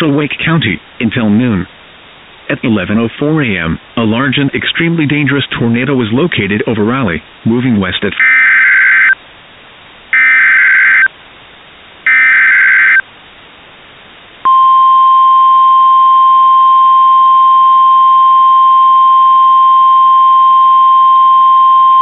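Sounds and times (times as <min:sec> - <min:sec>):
steady warning alarm tone: 0:08.2 - 0:09.2, 0:10.2 - 0:11.1, 0:12.1 - 0:13.0
data bursts: 0:10.2 - 0:11.1, 0:12.1 - 0:13.0.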